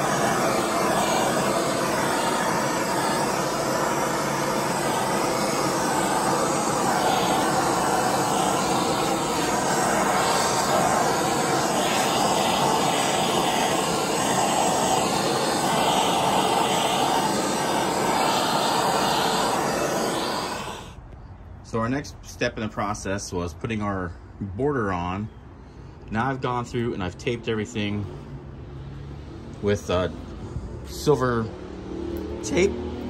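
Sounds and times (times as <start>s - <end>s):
gas torch hissing: 0.0s - 21.0s.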